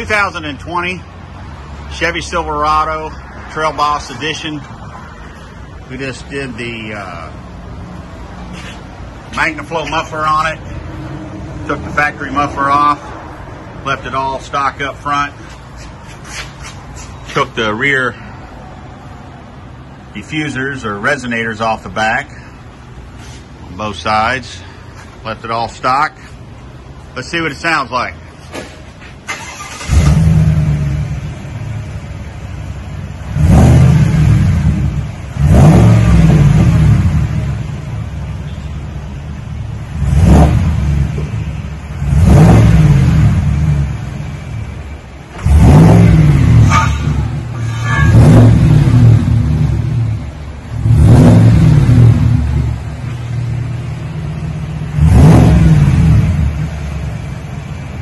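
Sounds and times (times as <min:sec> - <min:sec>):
truck engine starting and idling: 0:00.0 - 0:58.0
engine revving: 0:29.3 - 0:38.2, 0:39.6 - 0:58.0.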